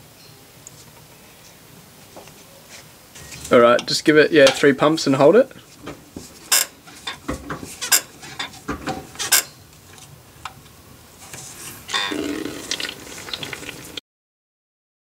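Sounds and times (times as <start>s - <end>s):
spanner clinking on metal: 6.5s - 7.2s, 7.8s - 8.6s, 9.2s - 9.5s.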